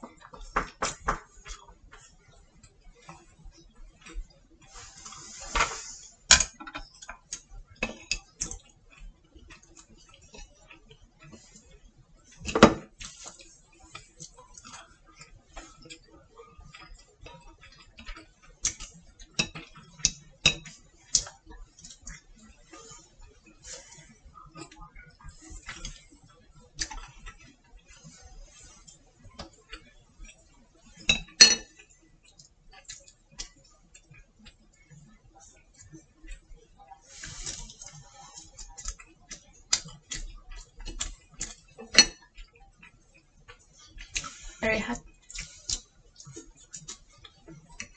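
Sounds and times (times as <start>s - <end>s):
chopsticks clicking against plate: 6.3s - 11.7s, 12.5s - 23.0s, 37.2s - 47.9s.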